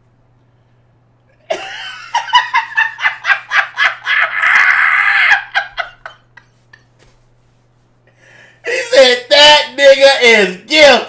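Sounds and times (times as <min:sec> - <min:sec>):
man laughing hard: 0:01.4 - 0:06.9, 0:08.7 - 0:09.3.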